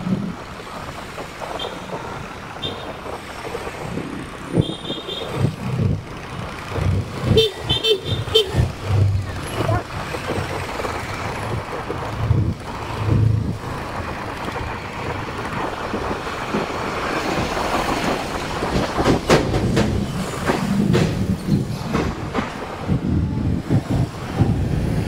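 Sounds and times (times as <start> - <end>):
road and wind noise: 0.0 - 25.0
motorcycle engine at low speed: 2.7 - 16.6.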